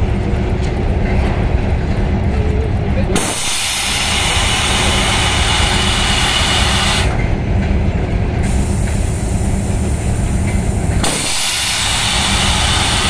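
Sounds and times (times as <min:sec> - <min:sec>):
electric locomotive humming: 0:00.0 - 0:13.0
loud air hiss: 0:03.2 - 0:07.2, 0:08.4 - 0:13.0.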